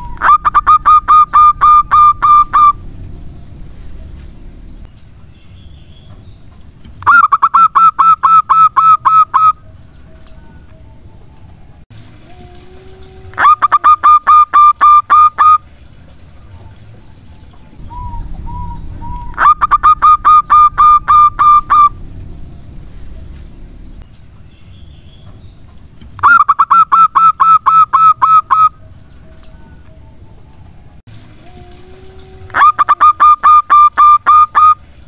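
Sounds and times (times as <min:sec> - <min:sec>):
dove cooing: 0:00.0 - 0:02.8, 0:17.8 - 0:22.0, 0:31.4 - 0:34.8.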